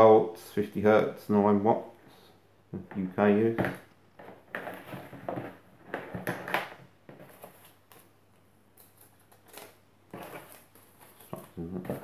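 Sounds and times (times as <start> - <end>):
paper leaflet rustling: 8.8 - 12.0.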